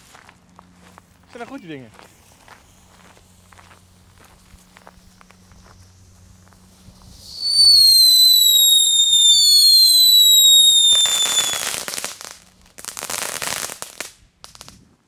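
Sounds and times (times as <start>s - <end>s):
firework crackling: 0.7s - 14.8s
firework shrill whistle: 6.8s - 12.3s.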